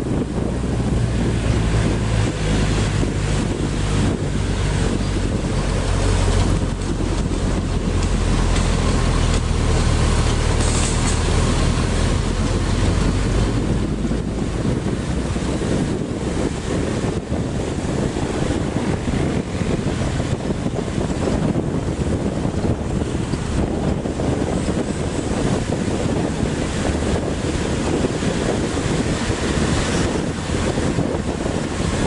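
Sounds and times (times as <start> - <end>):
bus engine drone: 0.0 - 32.0
wind rushing over microphone: 0.0 - 32.0.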